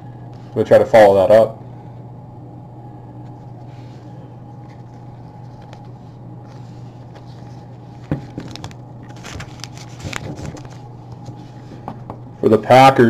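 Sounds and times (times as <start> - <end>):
steady low hum: 0.0 - 13.0
cards clicking and rustling: 6.5 - 11.3.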